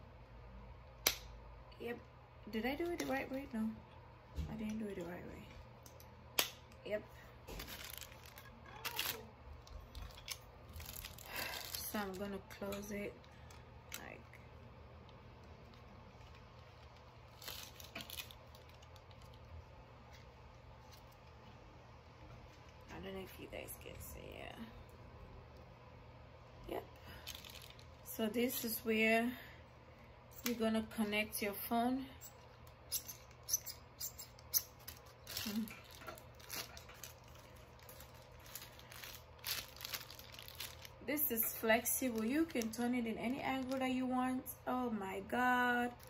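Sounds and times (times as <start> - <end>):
faint low hum: 0.0 - 46.0
plastic wrap rustling: 6.8 - 21.6, 26.7 - 28.7, 34.3 - 44.4.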